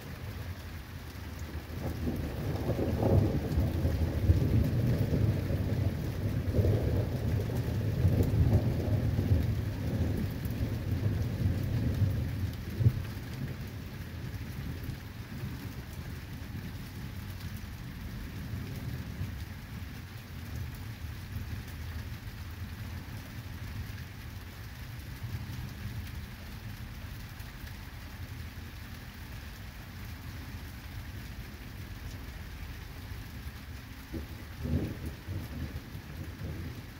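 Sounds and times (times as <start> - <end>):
steady rain: 0.0 - 36.9
thunder rumbling: 1.6 - 13.9, 34.1 - 36.9.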